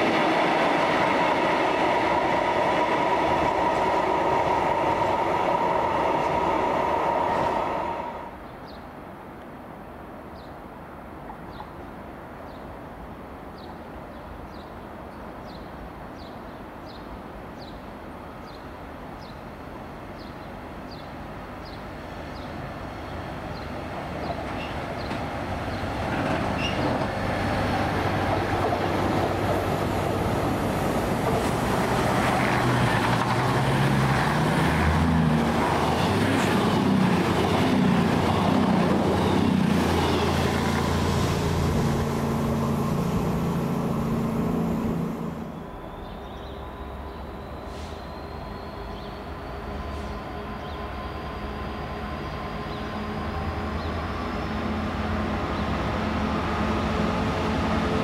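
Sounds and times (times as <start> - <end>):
diesel train engine: 0.0 - 8.4, 21.2 - 58.0
rail noise: 0.0 - 58.0.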